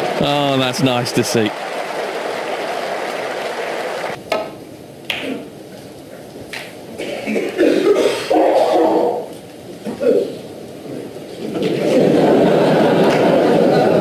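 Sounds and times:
crowd applauding: 0.0 - 4.2, 11.6 - 14.0
crowd noise: 0.0 - 4.2, 6.1 - 14.0.

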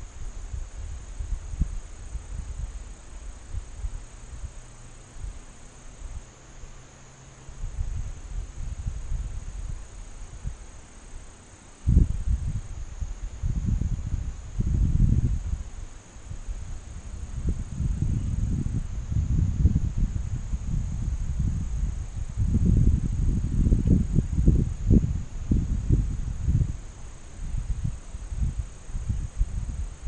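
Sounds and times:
crickets chirping: 0.0 - 30.0
low microphone rumble: 7.5 - 30.0.

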